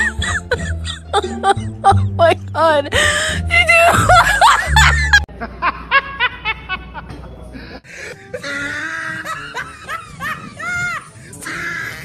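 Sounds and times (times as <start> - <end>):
music: 0.0 - 5.3, 7.9 - 12.0.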